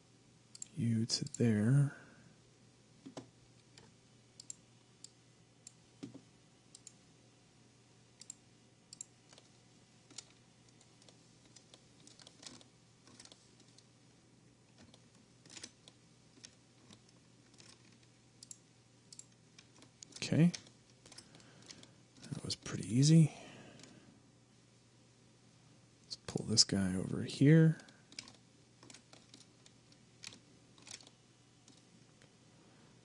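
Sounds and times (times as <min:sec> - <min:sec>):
faint low hum: 0:00.0 - 0:33.0
mouse and keyboard clicks: 0:08.2 - 0:13.9, 0:27.8 - 0:31.9.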